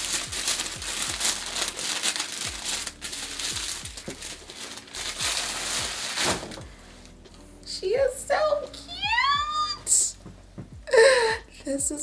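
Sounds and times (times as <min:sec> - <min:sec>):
tissue paper crinkling and rustling: 0:00.0 - 0:07.2.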